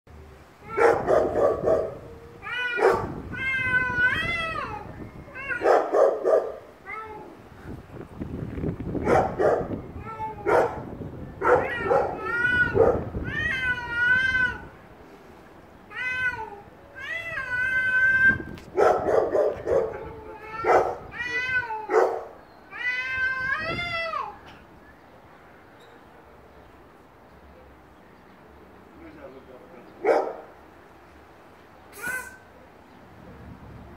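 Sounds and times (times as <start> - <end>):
cats yowling: 0.6 - 7.4, 9.0 - 14.8, 15.9 - 24.5
cats growling: 11.5 - 14.6.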